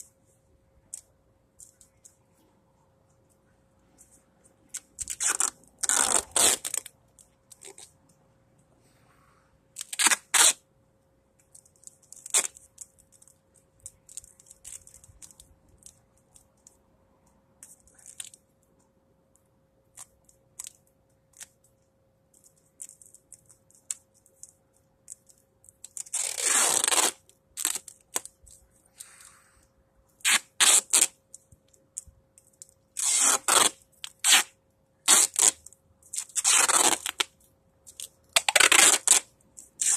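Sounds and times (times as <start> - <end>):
tape rustling and crinkling: 0.0 - 8.2, 9.8 - 10.6, 11.4 - 39.9
duct tape ripping off roll: 4.7 - 6.9, 9.8 - 10.6, 12.1 - 12.8, 25.8 - 28.4, 30.2 - 31.2, 32.9 - 39.9.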